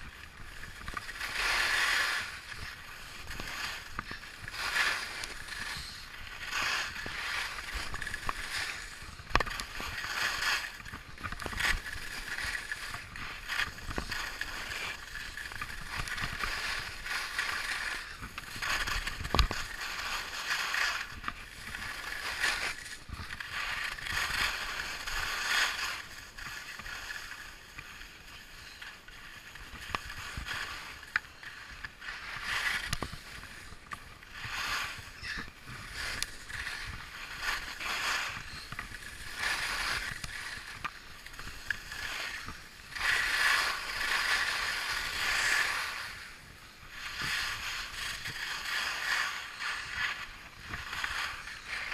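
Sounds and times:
skis scraping over snow: 0.0s - 51.9s.

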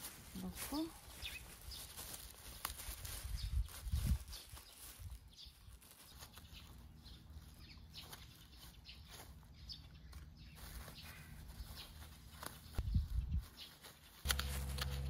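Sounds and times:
plastic mulch crinkling: 0.0s - 9.5s, 13.4s - 15.0s
gloved hands rustling soil: 0.0s - 15.0s.

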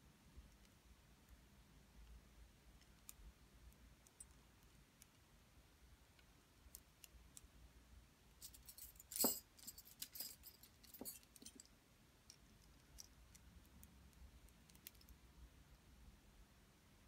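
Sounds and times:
metal rings clinking: 8.4s - 11.7s.

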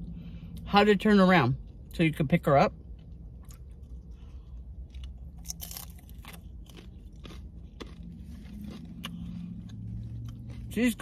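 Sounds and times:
chewing crunchy taco shell: 2.7s - 11.0s.

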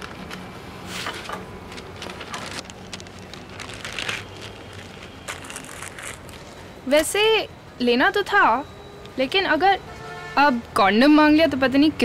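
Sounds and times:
wrapping rustling and crinkling: 0.0s - 6.7s.

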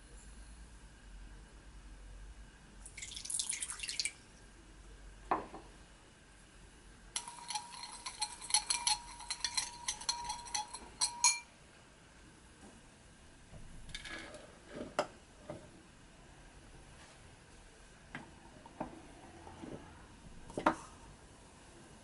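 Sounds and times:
water pouring into bowl: 2.9s - 4.2s
metal spoon stirring in glass bowl: 7.2s - 11.5s.

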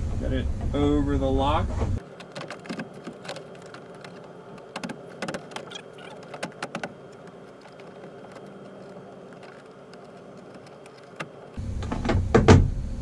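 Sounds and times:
plastic panel clicks and knocks: 2.2s - 8.7s.

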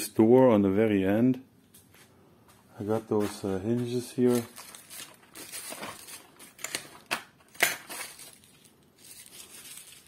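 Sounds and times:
hands rummaging through parts: 3.0s - 10.0s.

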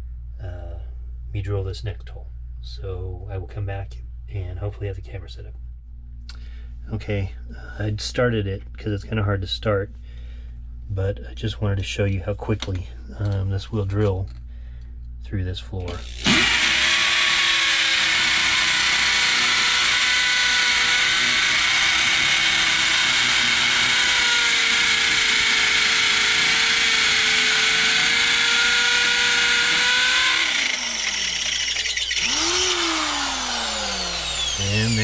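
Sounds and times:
hammer drill drilling into concrete: 15.9s - 35.0s.

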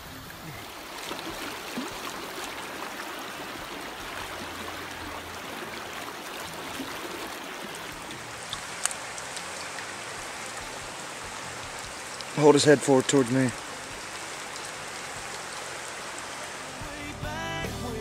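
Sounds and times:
river water flowing: 0.0s - 17.8s.

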